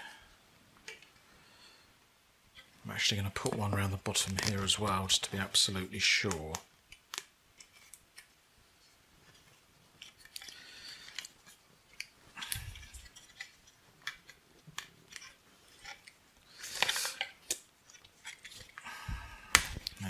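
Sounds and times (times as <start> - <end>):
crinkling and small clicks: 0.8 - 1.2, 2.5 - 18.9, 19.5 - 20.0
plastic tape pulled off roll: 10.0 - 18.8.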